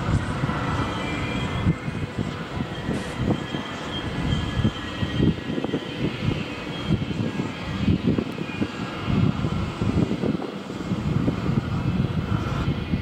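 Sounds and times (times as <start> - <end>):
train wheels rumbling on rails: 0.0 - 13.0
faint high ringing tones: 0.5 - 9.0.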